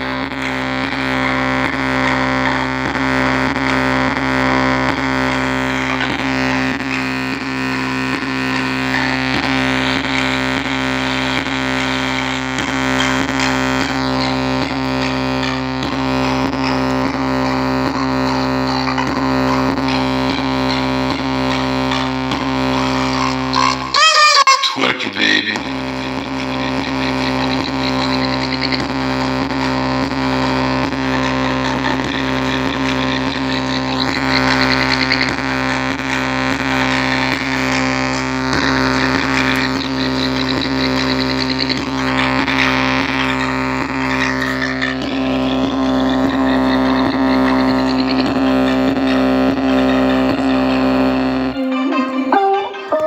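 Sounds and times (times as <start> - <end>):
distorted low loudspeaker drone: 0.0 - 51.8
faint beat: 0.0 - 53.0.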